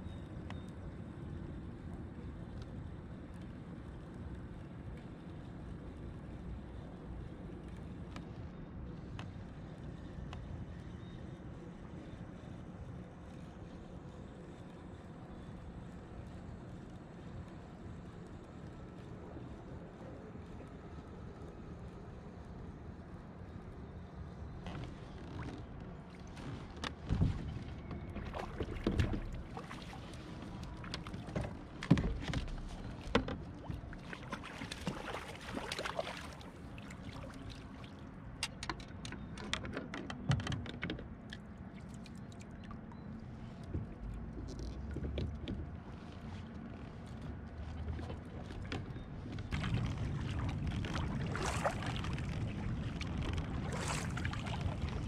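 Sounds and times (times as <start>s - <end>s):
water splashing: 28.2s - 32.8s, 33.9s - 38.0s, 49.5s - 55.0s
paddling water rush: 49.6s - 55.0s.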